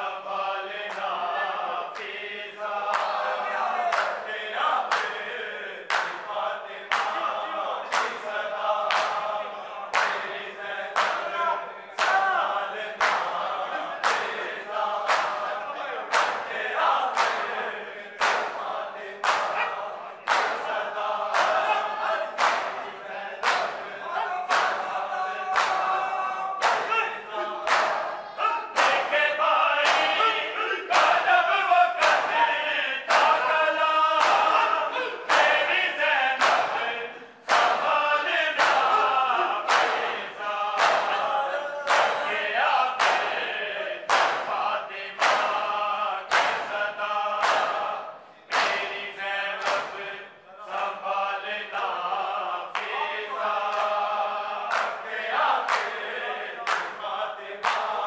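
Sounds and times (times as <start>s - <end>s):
men chanting in unison: 0.0s - 58.0s
hands slapping chests: 2.8s - 5.3s, 5.9s - 11.4s, 12.0s - 17.6s, 18.2s - 23.9s, 24.5s - 26.0s, 26.6s - 27.0s, 27.6s - 30.2s, 30.9s - 31.4s, 32.0s - 32.4s, 33.1s - 49.0s, 49.6s - 50.0s, 54.7s - 57.0s, 57.6s - 58.0s.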